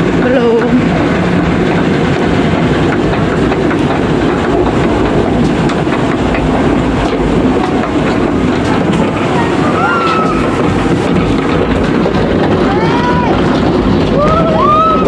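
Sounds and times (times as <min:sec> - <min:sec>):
boat rattling rumble on track: 0:00.0 - 0:15.0
rushing water: 0:00.0 - 0:15.0.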